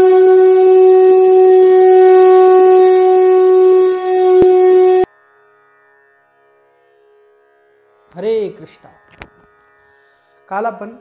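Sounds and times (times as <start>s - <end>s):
conch shell blast: 0.0s - 5.1s.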